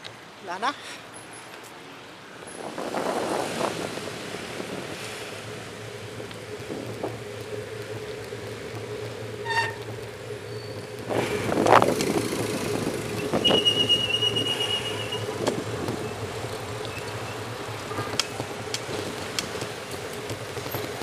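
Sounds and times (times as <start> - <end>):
street traffic rumble: 0.0 - 21.0
thin high squeal: 9.4 - 9.8.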